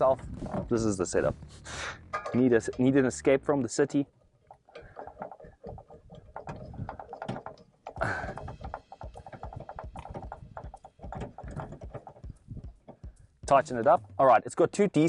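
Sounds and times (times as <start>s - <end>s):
clicks and rattles of hose connector: 4.4s - 13.3s
clatter: 4.5s - 13.2s.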